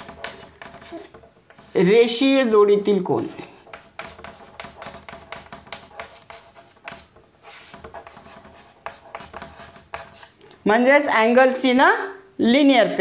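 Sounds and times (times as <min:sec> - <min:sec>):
chalk scratching on chalkboard: 0:00.0 - 0:02.2, 0:03.2 - 0:10.4.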